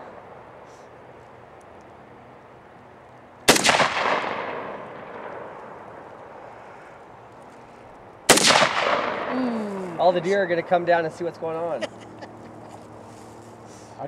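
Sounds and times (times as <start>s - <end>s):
rifle shots with echo: 3.4s - 6.6s, 8.3s - 9.4s.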